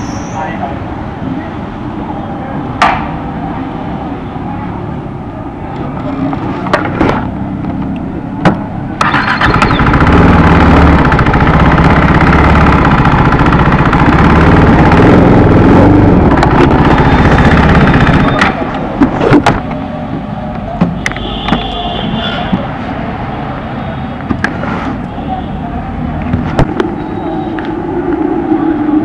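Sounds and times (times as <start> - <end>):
motorcycle engine running: 9.0 - 18.7.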